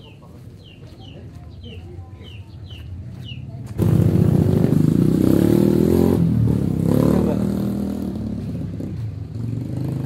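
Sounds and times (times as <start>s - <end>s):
small birds chirping: 0.0s - 3.8s
motorcycle engine running: 3.6s - 10.0s.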